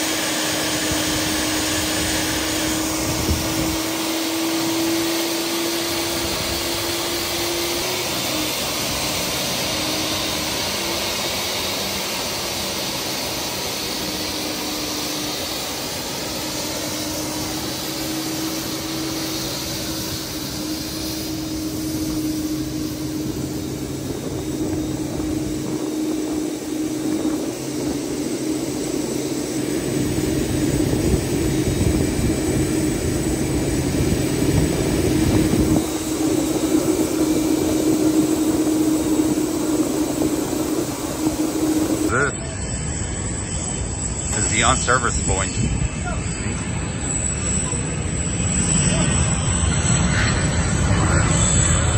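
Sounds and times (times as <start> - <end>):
jet engine rush with whine: 0.0 - 51.9.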